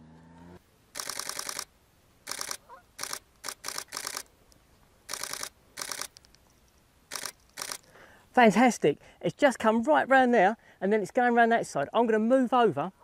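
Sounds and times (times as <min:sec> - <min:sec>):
camera shutter bursts: 0:00.9 - 0:04.3, 0:05.1 - 0:06.3, 0:07.1 - 0:07.9.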